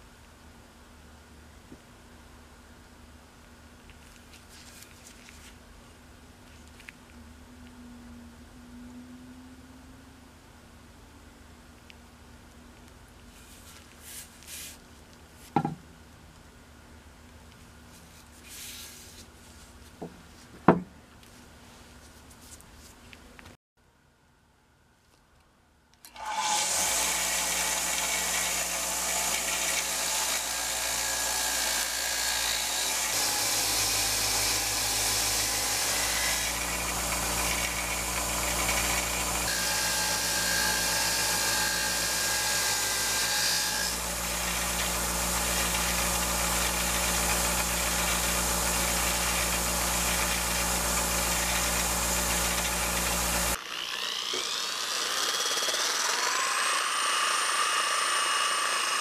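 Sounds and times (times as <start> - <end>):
bench grinder motor hum: 26.2 - 59.0
sander whine: 44.0 - 59.0.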